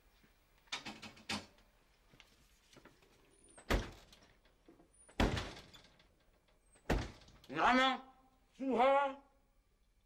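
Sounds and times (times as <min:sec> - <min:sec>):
refrigerator door thudding shut: 0:06.9 - 0:07.3.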